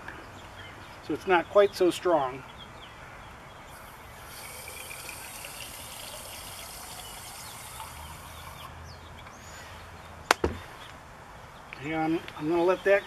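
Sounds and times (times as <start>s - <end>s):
hose water running into jar: 3.8s - 8.7s.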